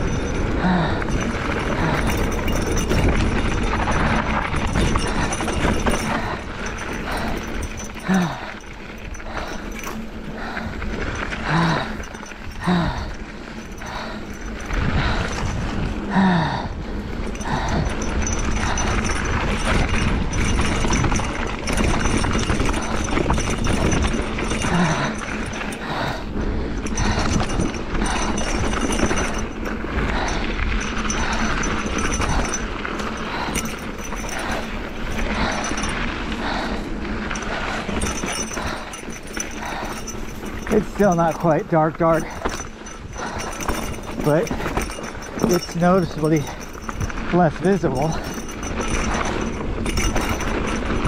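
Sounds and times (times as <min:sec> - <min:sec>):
bike rattling and clattering: 0:00.0 - 0:51.0
bike tyres crunching over dirt: 0:48.2 - 0:51.0.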